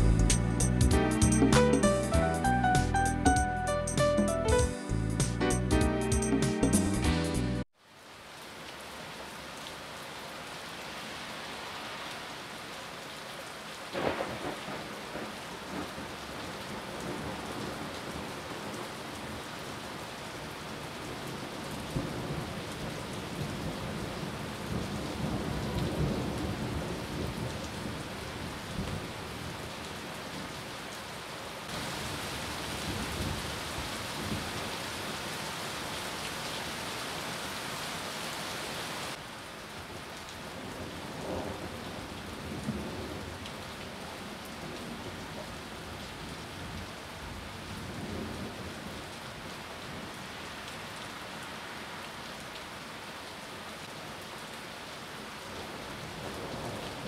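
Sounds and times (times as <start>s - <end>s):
heavy rain on leaves: 7.7s - 57.0s
low rumble of thunder: 14.0s - 16.0s, 23.3s - 28.0s, 32.8s - 34.5s.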